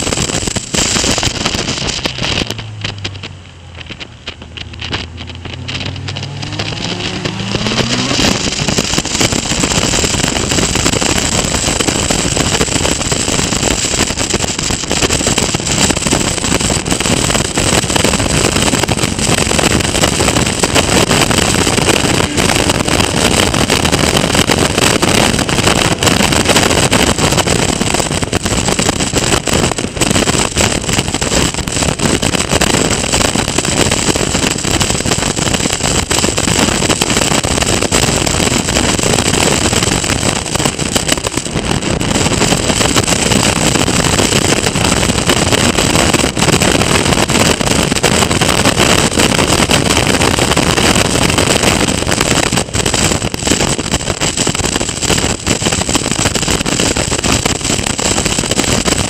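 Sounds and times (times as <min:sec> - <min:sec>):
wind and road noise: 0:00.0 - 0:59.0
race car engine revving: 0:01.7 - 0:12.4, 0:16.3 - 0:28.5.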